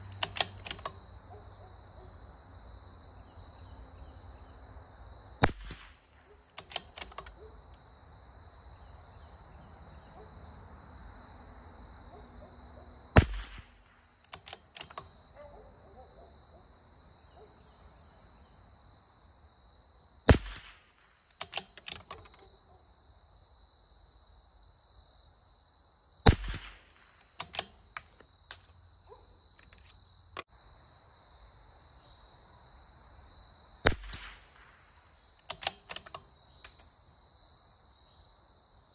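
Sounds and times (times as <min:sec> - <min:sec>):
rifle bolt clicks: 0:00.1 - 0:01.0, 0:06.5 - 0:07.5, 0:13.2 - 0:15.2, 0:20.3 - 0:22.5, 0:26.3 - 0:28.8, 0:29.6 - 0:30.0, 0:35.4 - 0:36.9
rifle shots cracking: 0:05.4 - 0:07.4, 0:13.2 - 0:15.0, 0:20.3 - 0:22.4, 0:26.2 - 0:28.7, 0:33.8 - 0:36.2
high insect drone: 0:14.2 - 0:20.3.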